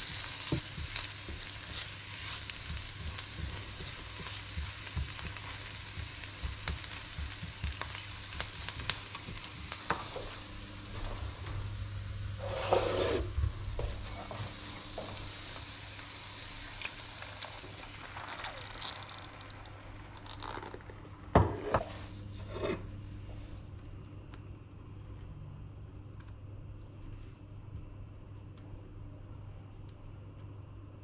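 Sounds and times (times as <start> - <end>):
onions sizzling in a frying pan: 0.0 - 20.4.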